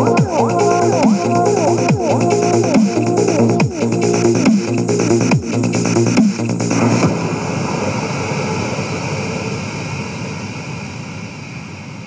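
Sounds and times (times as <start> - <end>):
electronic dance beat: 0.0 - 7.0
noise wash whoosh: 6.6 - 12.0.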